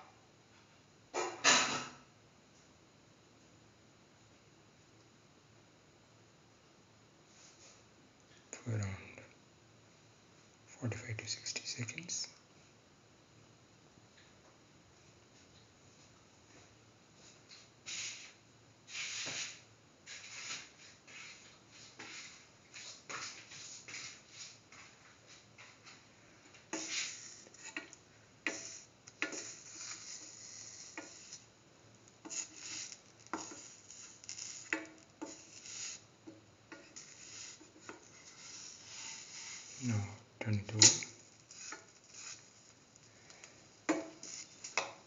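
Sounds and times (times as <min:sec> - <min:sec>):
flatbread crackling in hot pan: 0:21.9 - 0:45.0.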